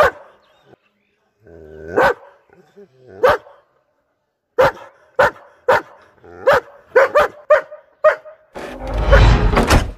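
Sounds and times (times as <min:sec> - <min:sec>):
dog barking: 0:00.0 - 0:00.4, 0:01.9 - 0:02.4, 0:03.2 - 0:03.7, 0:04.6 - 0:08.5.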